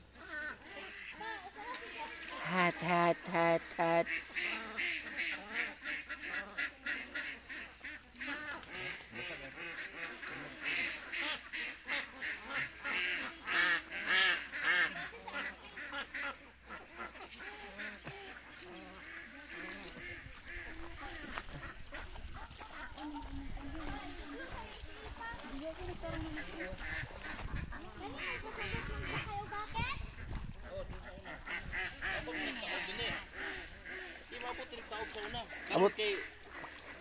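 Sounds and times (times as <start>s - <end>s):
ducks quacking: 0.0s - 37.0s.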